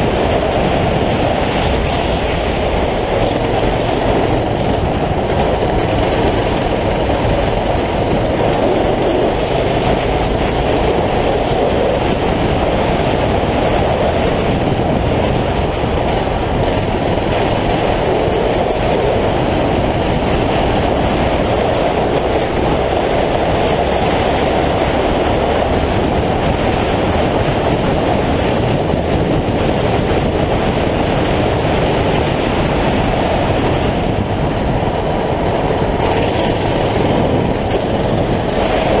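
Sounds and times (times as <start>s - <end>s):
kart engine rumble: 0.0s - 39.0s
wind rush on microphone: 0.0s - 39.0s.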